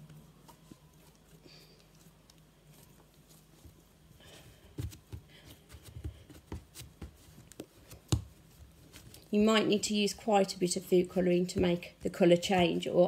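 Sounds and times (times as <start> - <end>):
soft thumps of dough kneading: 0.0 - 13.0.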